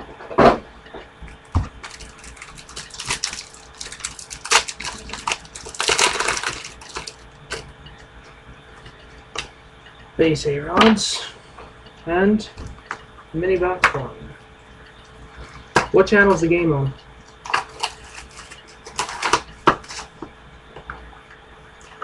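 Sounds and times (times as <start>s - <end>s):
card pack wrapper crinkling and tearing: 1.8s - 7.2s, 17.4s - 20.1s.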